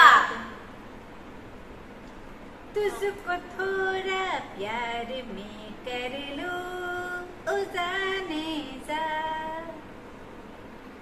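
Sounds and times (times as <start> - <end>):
woman singing unaccompanied: 2.7 - 9.9.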